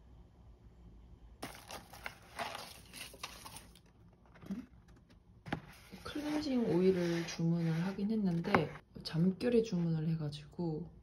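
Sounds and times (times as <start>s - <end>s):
packing paper crinkling: 1.4s - 4.6s.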